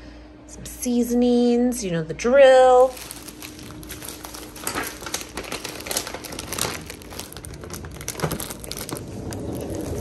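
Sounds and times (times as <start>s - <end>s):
plastic bags crinkling: 2.7s - 10.0s.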